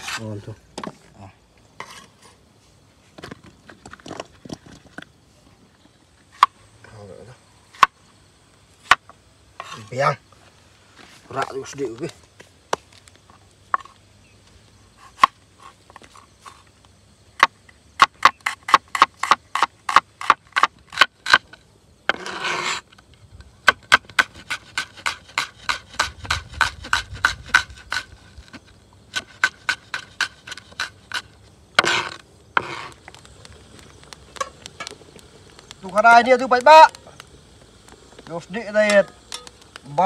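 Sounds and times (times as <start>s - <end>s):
knife scraping board: 0.0s - 0.3s, 1.8s - 2.4s, 9.6s - 9.9s, 22.1s - 22.8s, 24.3s - 33.0s.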